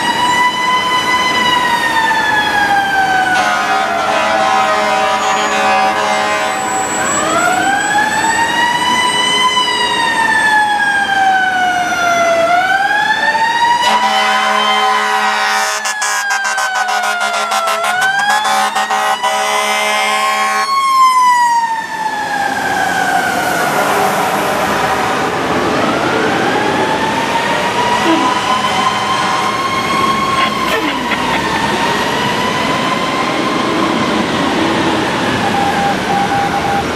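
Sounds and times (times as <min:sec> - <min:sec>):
fire truck siren wailing: 0:00.0 - 0:36.9
air horn blast: 0:03.4 - 0:06.7, 0:13.8 - 0:20.7, 0:28.0 - 0:29.6.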